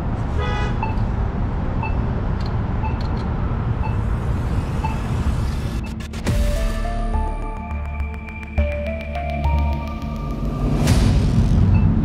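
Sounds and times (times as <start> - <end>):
street traffic rumble: 0.0 - 6.4.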